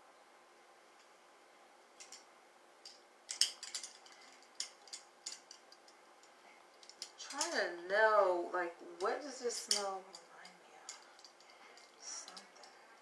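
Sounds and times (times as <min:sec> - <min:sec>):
metal jewelry clinking: 0:02.0 - 0:07.9, 0:09.0 - 0:13.0.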